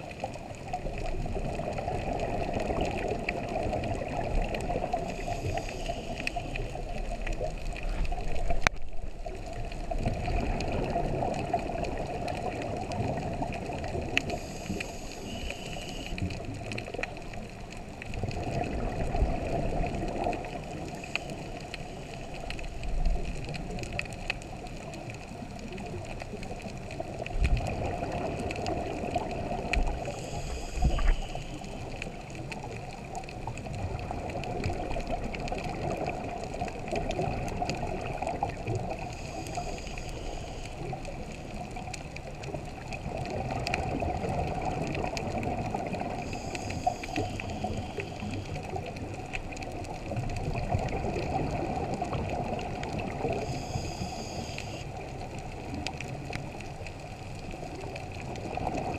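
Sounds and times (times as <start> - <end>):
exhaled air bubbling: 0.0 - 58.9
diver breathing through regulator: 5.1 - 6.7, 14.3 - 16.2, 30.0 - 31.8, 39.1 - 40.8, 46.2 - 48.6, 53.3 - 54.9.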